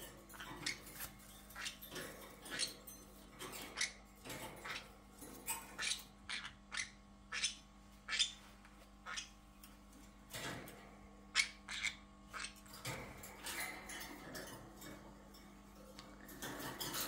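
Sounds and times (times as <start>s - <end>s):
parrots chirping: 0.0s - 9.5s, 11.2s - 15.0s.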